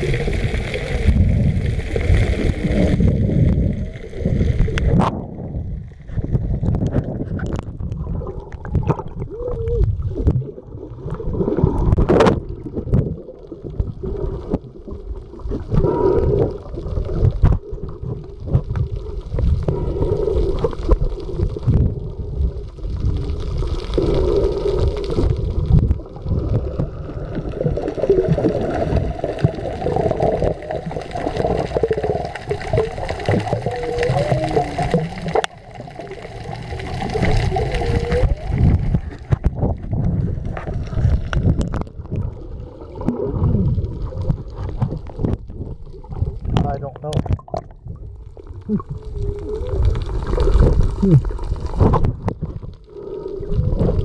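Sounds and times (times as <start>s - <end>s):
water sloshing and gurgling: 0.0s - 54.0s.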